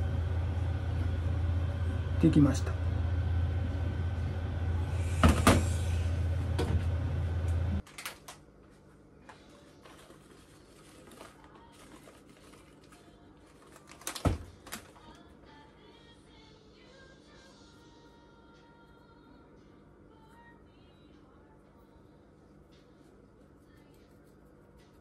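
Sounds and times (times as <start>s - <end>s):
low hum: 0.0s - 7.8s.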